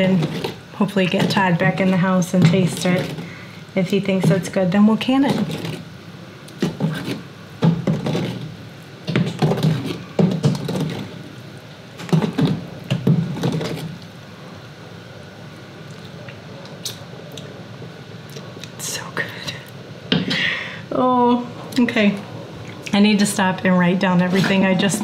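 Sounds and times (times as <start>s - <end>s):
ladle knocking and scraping a pot: 0.0s - 3.3s, 3.9s - 5.9s, 6.6s - 11.2s, 12.0s - 14.0s.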